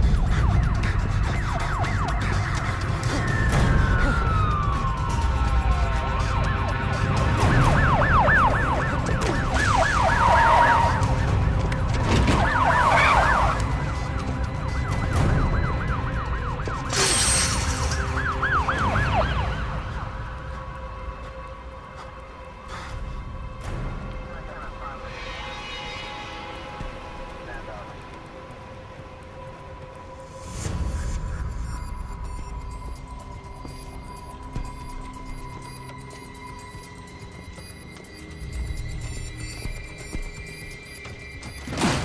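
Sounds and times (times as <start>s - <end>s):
police sirens wailing and yelping: 0.0s - 22.6s, 26.5s - 42.0s.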